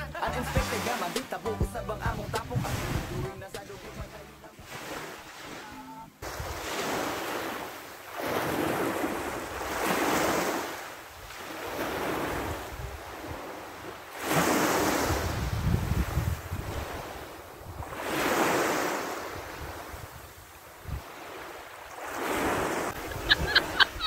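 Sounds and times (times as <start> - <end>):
small waves breaking on shore: 0.6 - 1.5, 2.4 - 24.0
wind buffeting microphone: 12.3 - 13.5, 14.9 - 18.0.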